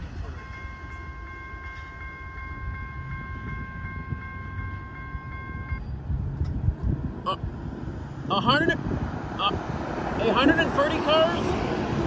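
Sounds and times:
crossing warning bell ringing: 0:00.0 - 0:06.0.

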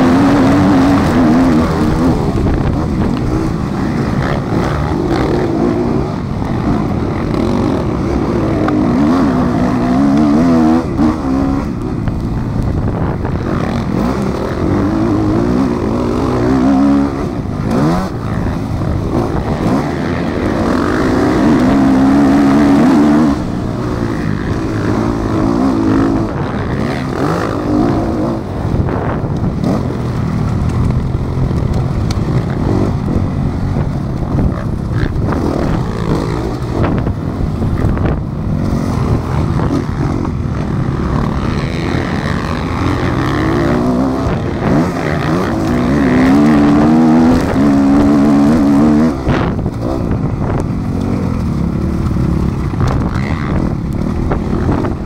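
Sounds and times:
motocross bike engine revving: 0:00.0 - 0:55.0.

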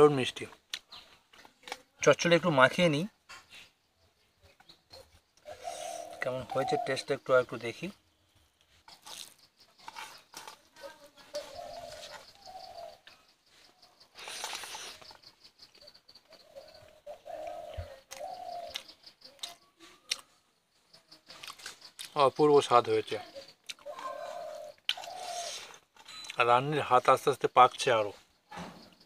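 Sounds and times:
dove cooing: 0:04.9 - 0:07.2, 0:10.1 - 0:13.2, 0:15.8 - 0:19.1, 0:23.2 - 0:25.8
person eating by hand: 0:08.6 - 0:13.2, 0:14.1 - 0:16.0, 0:16.8 - 0:20.4, 0:21.2 - 0:22.2, 0:23.6 - 0:26.4.

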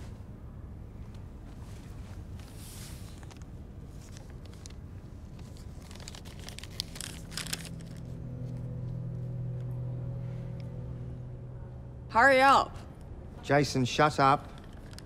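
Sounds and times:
low steady hum: 0:00.0 - 0:15.0
paper crinkling: 0:01.9 - 0:09.1.

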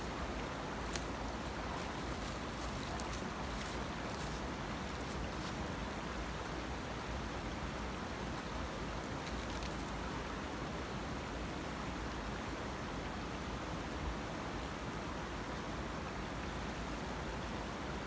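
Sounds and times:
brook rushing over rocks: 0:00.0 - 0:06.9, 0:08.4 - 0:10.3.

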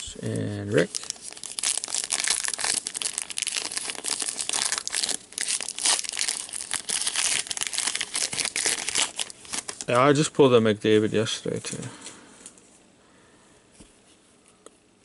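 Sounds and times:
cards and wrapper crinkling: 0:00.7 - 0:10.0.

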